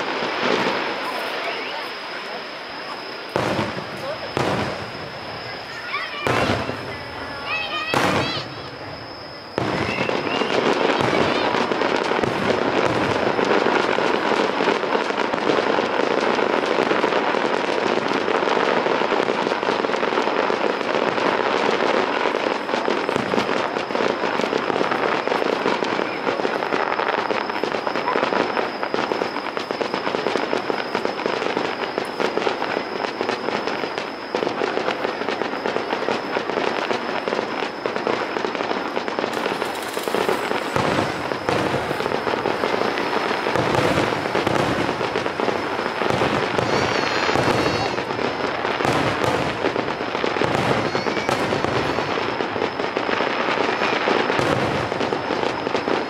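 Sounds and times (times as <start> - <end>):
fireworks bursting and crackling: 0.0 - 56.0.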